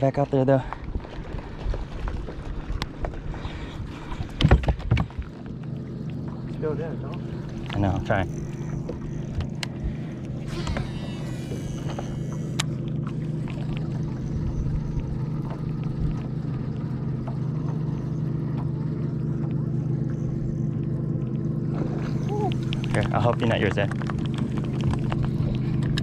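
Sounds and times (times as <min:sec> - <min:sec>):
low motor drone: 0:00.0 - 0:26.0
fishing reel spool whirring: 0:05.5 - 0:26.0
reel spool click: 0:07.1 - 0:16.4.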